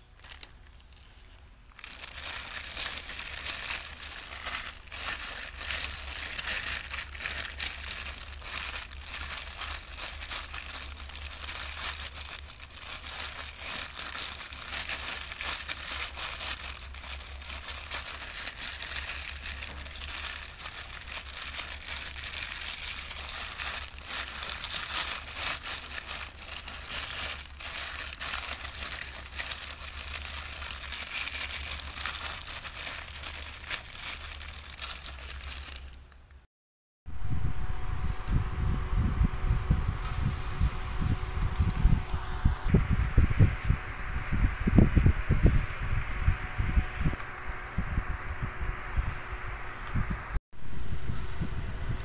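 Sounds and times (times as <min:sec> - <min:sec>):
plastic glove crinkling: 0:00.0 - 0:36.4, 0:39.9 - 0:49.1
steady low hum: 0:37.1 - 0:52.0.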